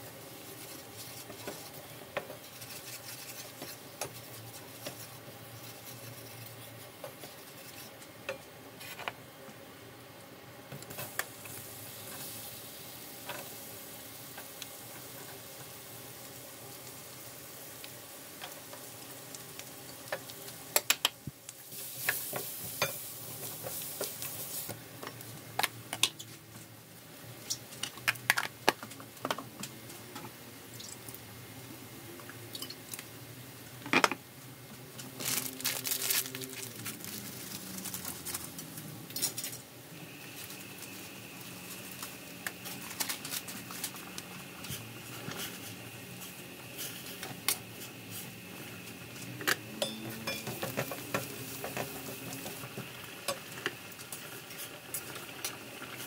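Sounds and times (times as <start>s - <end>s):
garlic and onion frying: 0.0s - 56.0s
faint steady high tone: 49.8s - 50.6s.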